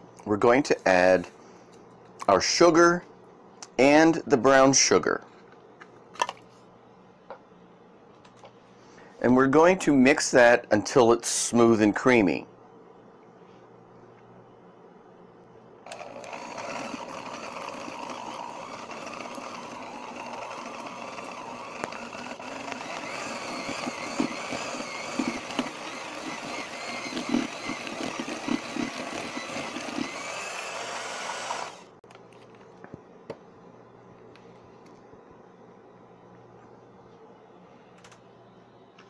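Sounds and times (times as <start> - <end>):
electric hand mixer running: 15.9 - 32.0.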